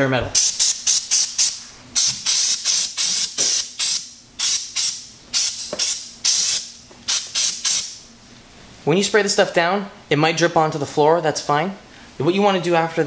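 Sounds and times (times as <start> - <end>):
aerosol spray hissing in bursts: 0.4 - 8.0.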